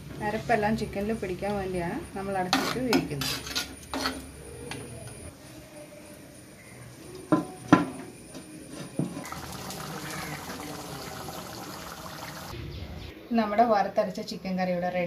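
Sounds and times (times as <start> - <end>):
curry simmering and bubbling: 9.2 - 12.6.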